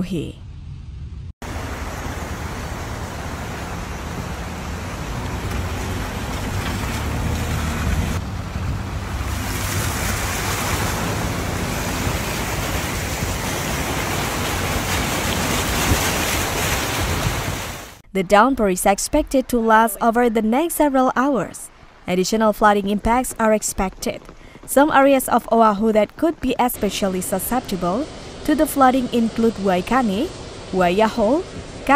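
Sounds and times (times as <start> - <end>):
floodwater rushing: 1.4 - 18.0, 24.3 - 31.9.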